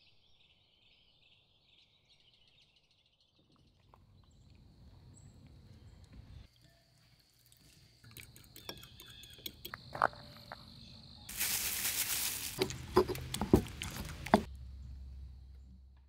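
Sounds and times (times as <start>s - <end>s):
crickets chirping: 4.1s - 15.9s
fire hissing: 11.3s - 14.5s
pestle pounding in stone mortar: 12.6s - 14.5s.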